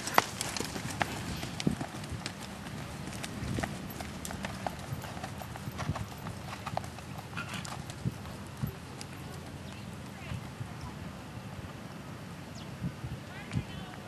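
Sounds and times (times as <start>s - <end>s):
horse hoofbeats on dirt: 0.0s - 11.0s.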